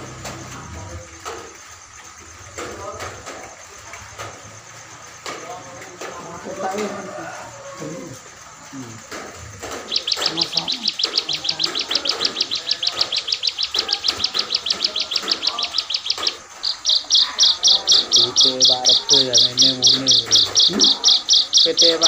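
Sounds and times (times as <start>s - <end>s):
songbird singing high chip notes: 9.7s - 22.0s.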